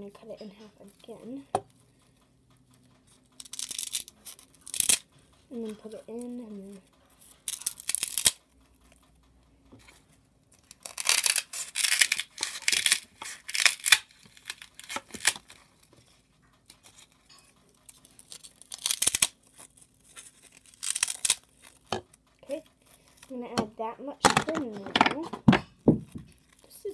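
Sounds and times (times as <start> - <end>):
scissors snipping foam: 7.2 - 8.4, 10.5 - 15.6, 17.9 - 22.1.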